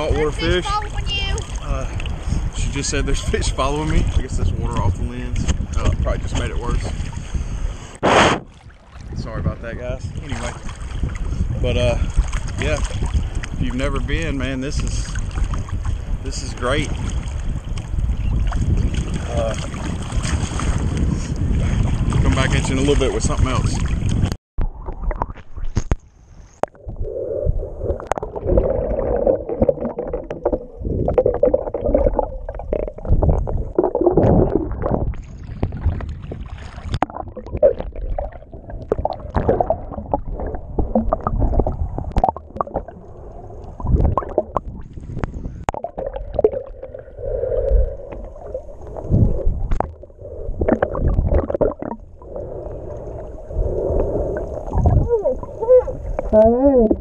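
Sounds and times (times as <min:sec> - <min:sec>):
water gurgling: 0:00.0 - 0:07.0, 0:21.5 - 0:26.0, 0:26.6 - 0:57.0
muffled underwater rumble: 0:09.0 - 0:57.0.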